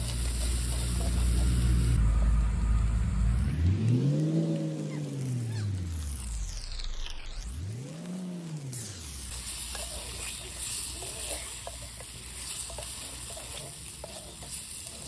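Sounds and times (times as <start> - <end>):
curry sizzling in a pot: 0.0 - 2.0, 7.8 - 15.0
wooden spatula scraping: 0.0 - 2.0, 9.4 - 15.0.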